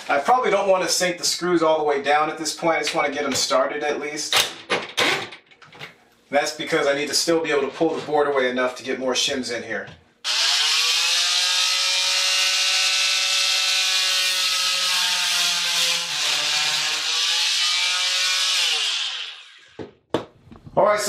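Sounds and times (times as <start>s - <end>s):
oscillating multi-tool buzzing: 10.2s - 19.8s.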